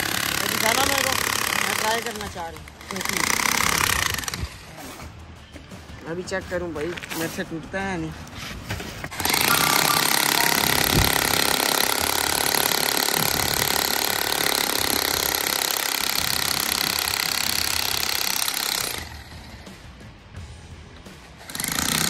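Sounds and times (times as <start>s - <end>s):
demolition hammer chiselling concrete: 0.0s - 4.5s, 9.1s - 19.2s, 21.4s - 22.0s.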